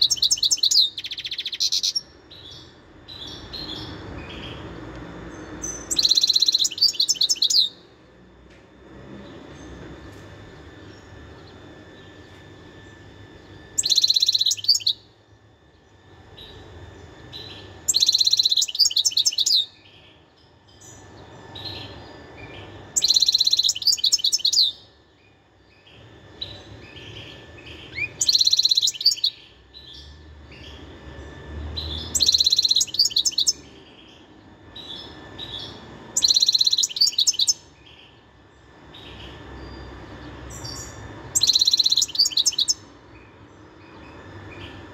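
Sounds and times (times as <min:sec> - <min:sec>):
goldfinch twittering song: 0:00.0 - 0:04.6, 0:05.6 - 0:07.8, 0:13.8 - 0:15.0, 0:17.3 - 0:24.8, 0:26.8 - 0:30.9, 0:31.7 - 0:34.2, 0:34.8 - 0:38.2, 0:39.0 - 0:44.8.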